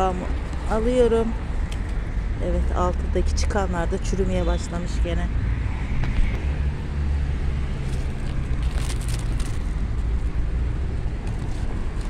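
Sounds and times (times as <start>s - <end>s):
traffic going by: 0.0s - 12.0s
vehicle engine rumble: 0.0s - 12.0s
leaves rustling: 7.7s - 10.4s.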